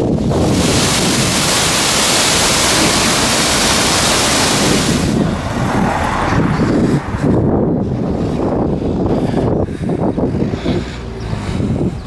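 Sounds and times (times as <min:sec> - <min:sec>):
waterfall rushing over rocks: 0:00.0 - 0:07.0
low uneven rumble: 0:00.0 - 0:12.0.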